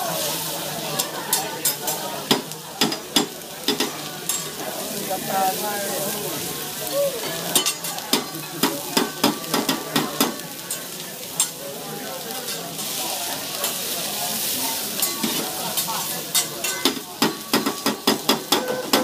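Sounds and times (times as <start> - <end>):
food sizzling on a griddle: 0.0 - 19.0
metal spatulas scraping a griddle: 12.4 - 19.0.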